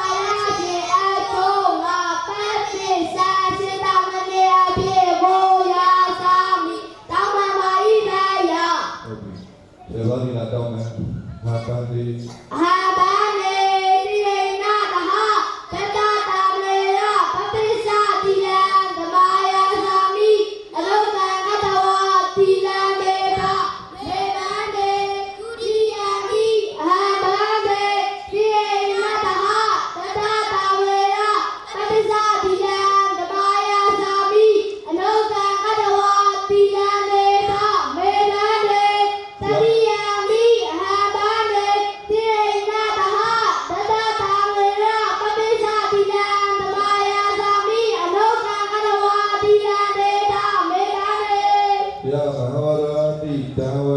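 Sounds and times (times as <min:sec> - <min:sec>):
monks chanting into a microphone: 0:52.0 - 0:53.9.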